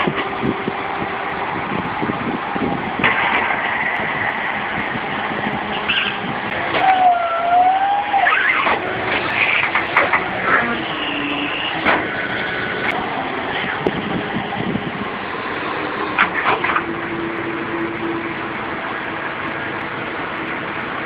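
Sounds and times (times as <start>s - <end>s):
tow truck engine running: 0.0s - 21.0s
short squeaks: 5.7s - 6.2s, 8.2s - 9.9s.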